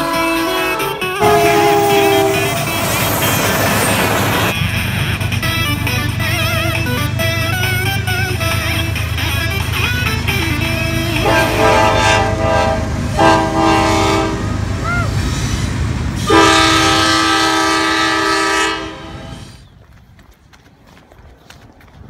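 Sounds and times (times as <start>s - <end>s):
train air horn blasts: 0.0s - 3.2s, 10.6s - 14.7s, 15.4s - 19.6s
train rumbling past: 0.0s - 20.0s.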